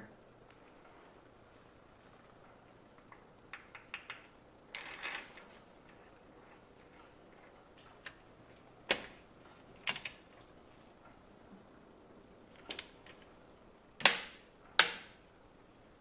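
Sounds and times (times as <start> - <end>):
light metal clicks and clinks: 2.7 - 7.2.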